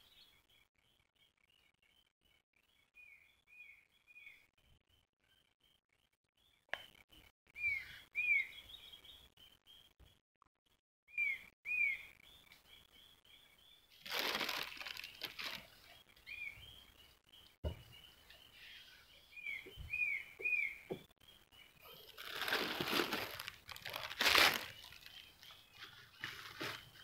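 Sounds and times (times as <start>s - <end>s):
bird chirping: 0.0s - 27.0s
crinkling rustling: 14.0s - 15.8s, 22.0s - 27.0s.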